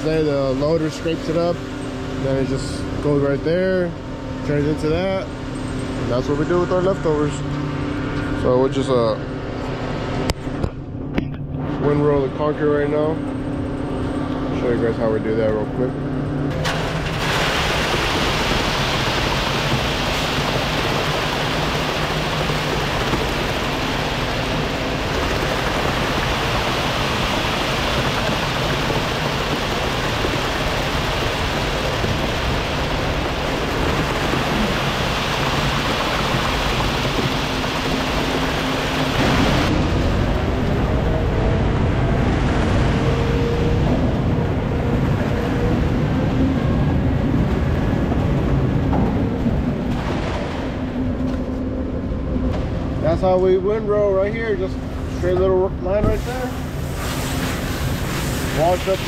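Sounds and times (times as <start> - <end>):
truck engine rising tone: 0.0 - 58.8
wet concrete rushing down chute: 16.5 - 51.2, 52.9 - 59.0.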